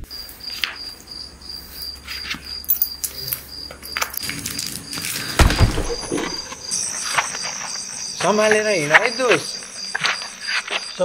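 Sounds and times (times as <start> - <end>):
crickets chirping: 0.0 - 11.0
belt buckle clinking: 1.8 - 4.2
heavy thump: 5.3 - 6.6.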